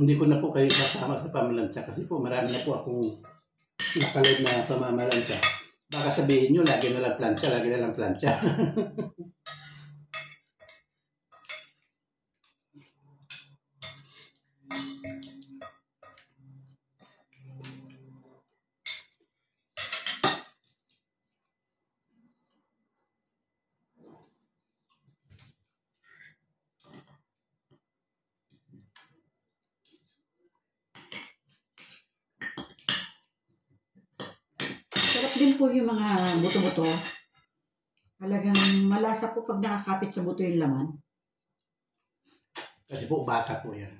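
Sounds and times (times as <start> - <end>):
fork scraping on plate: 12.8 - 16.4.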